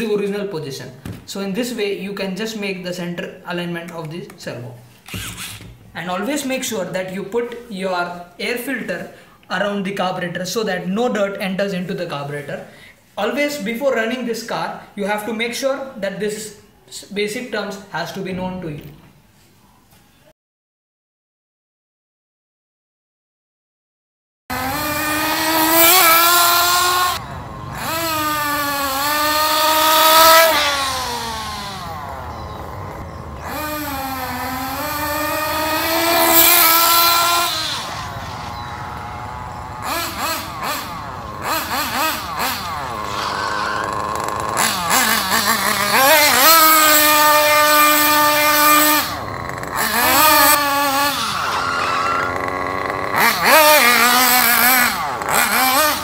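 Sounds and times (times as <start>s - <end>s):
small engine revving with buzzing whine: 5.0s - 6.0s, 24.5s - 56.0s.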